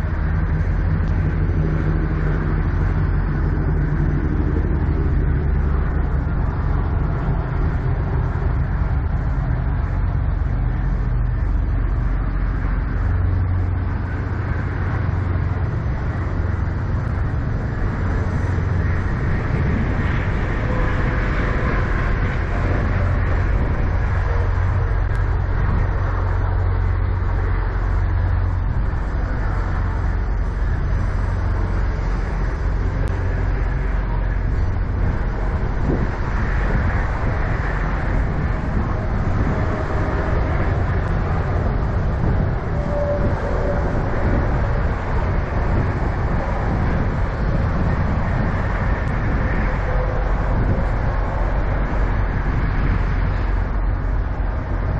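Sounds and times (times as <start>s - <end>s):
diesel truck engine idling: 0.0s - 54.9s.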